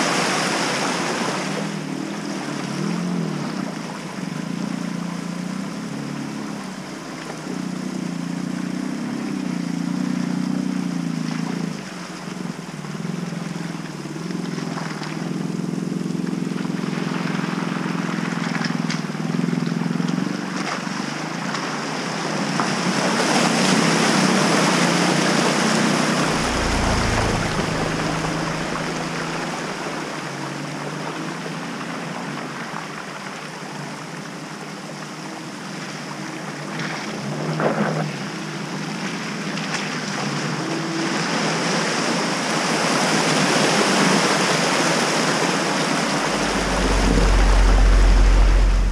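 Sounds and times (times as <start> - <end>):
suv engine running: 25.1 - 31.2, 46.0 - 48.9
low rumble: 25.6 - 30.7, 46.0 - 48.9.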